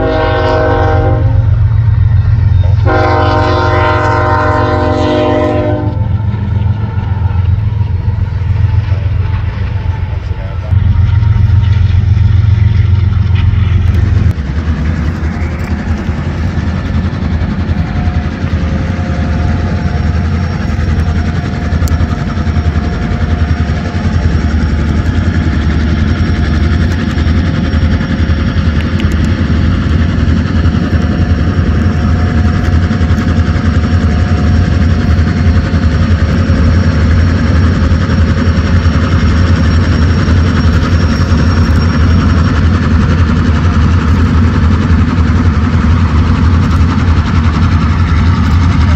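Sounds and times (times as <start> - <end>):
diesel locomotives throbbing: 0.0 - 48.9.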